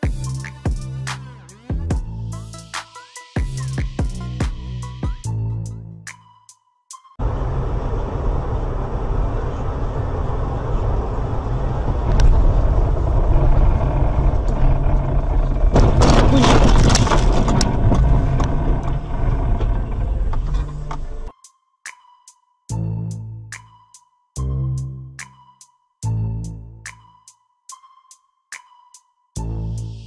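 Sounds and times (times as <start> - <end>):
car road and engine rumble: 7.2 - 21.3
crunching and rattling: 12.4 - 21.3.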